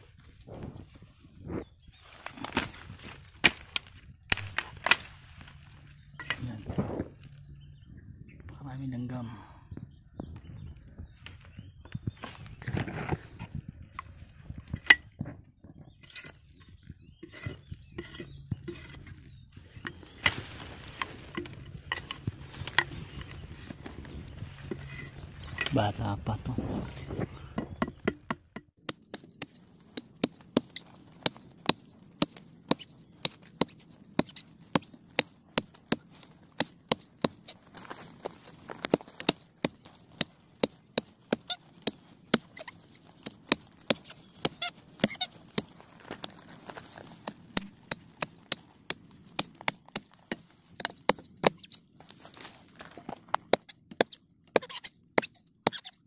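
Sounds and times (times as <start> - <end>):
knife chopping bamboo: 27.6 - 45.8, 47.2 - 51.7.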